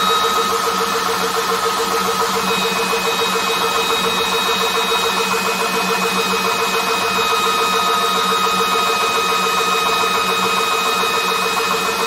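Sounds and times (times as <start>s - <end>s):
air compressor whirring: 0.0s - 12.0s.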